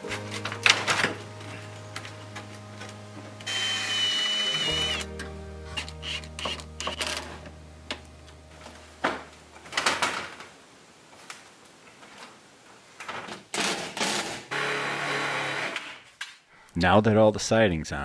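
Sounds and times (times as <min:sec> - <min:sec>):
low hum: 0:00.1 - 0:09.8.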